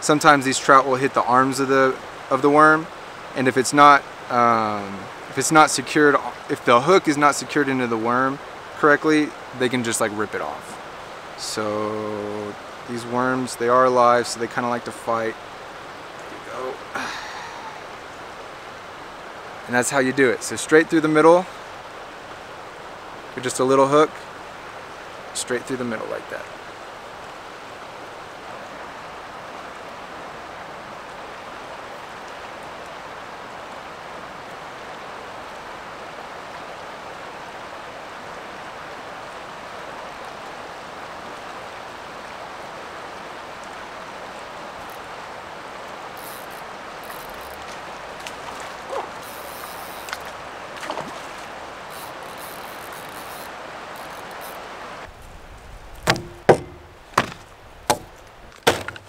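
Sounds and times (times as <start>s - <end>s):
river rushing over riffles: 0.0s - 59.0s
faint clicks: 46.2s - 48.4s, 51.9s - 54.6s.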